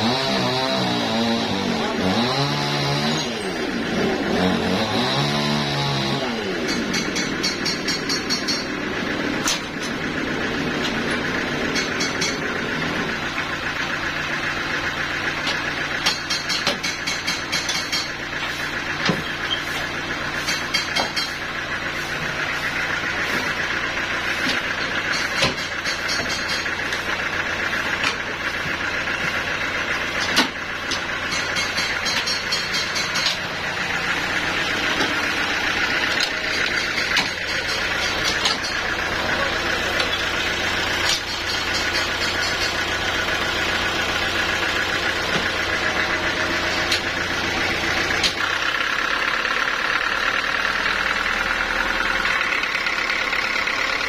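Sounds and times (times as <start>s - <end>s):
band saw cutting log: 0.0s - 49.4s
low engine hum: 0.0s - 54.0s.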